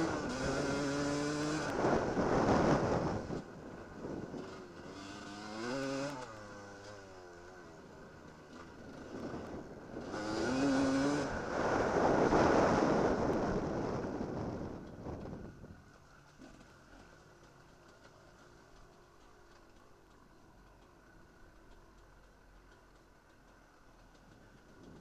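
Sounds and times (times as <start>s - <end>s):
dirt bike engine revving: 0.0s - 3.4s, 4.1s - 14.0s.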